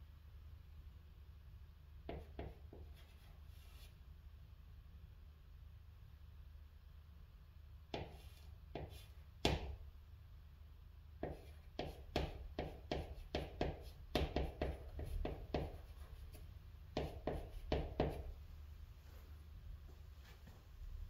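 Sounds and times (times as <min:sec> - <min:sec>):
chalk writing on a chalkboard: 0:02.1 - 0:04.0, 0:07.9 - 0:09.8, 0:11.2 - 0:18.3.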